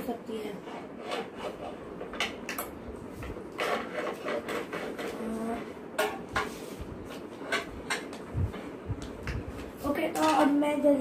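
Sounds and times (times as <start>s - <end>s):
pencil scratching on paper: 0.5s - 2.0s.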